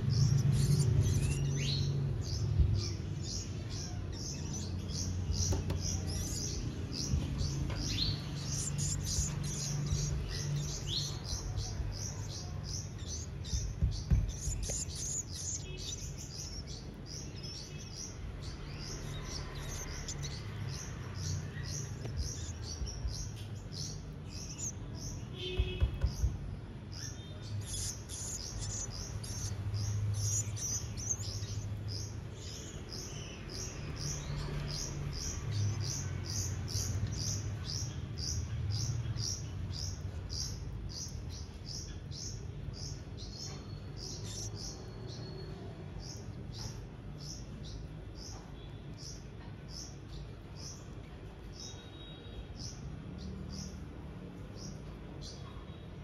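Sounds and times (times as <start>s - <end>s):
nestling birds cheeping: 0.0s - 56.0s
knocks: 13.5s - 14.8s, 25.5s - 26.4s.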